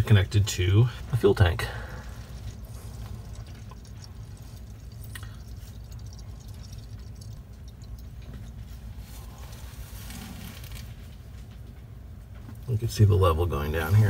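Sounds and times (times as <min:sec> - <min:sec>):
steady low rumble: 0:00.0 - 0:14.0
fuel trickling into bowl: 0:00.3 - 0:11.0.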